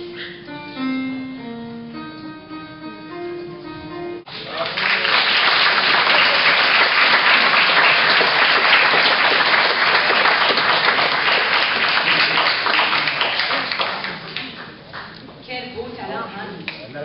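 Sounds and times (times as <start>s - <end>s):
audience applauding: 4.3s - 15.2s.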